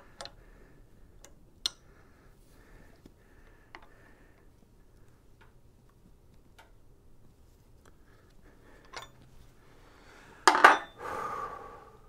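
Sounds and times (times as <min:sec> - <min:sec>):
metal tool clanking on metal: 0:10.5 - 0:11.0.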